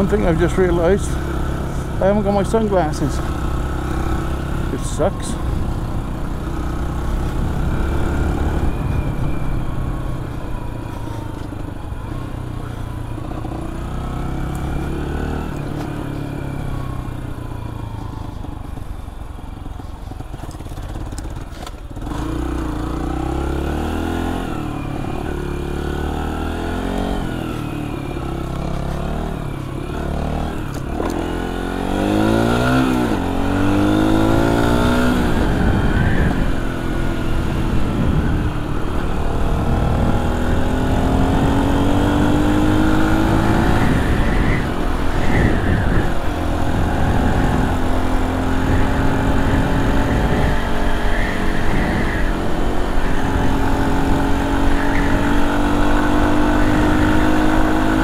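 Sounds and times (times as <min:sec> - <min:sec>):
dirt bike engine revving: 0:00.0 - 0:09.6, 0:22.0 - 0:58.0.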